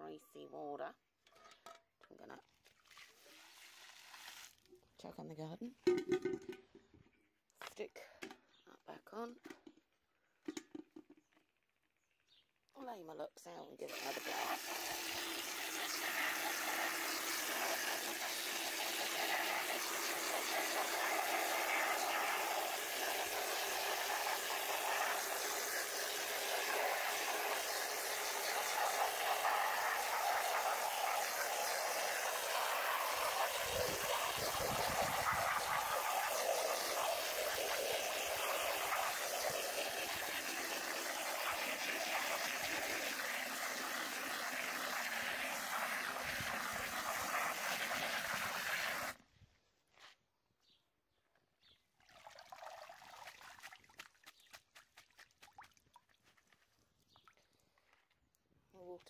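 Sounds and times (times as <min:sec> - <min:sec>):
hose spray jetting water: 0:03.0 - 0:04.6, 0:13.8 - 0:49.2.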